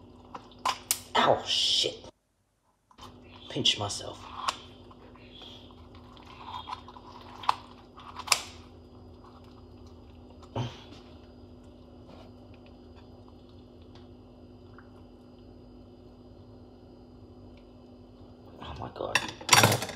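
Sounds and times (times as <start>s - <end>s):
faint room hum: 0.0s - 19.9s
scissors crunching through bone: 6.2s - 8.6s.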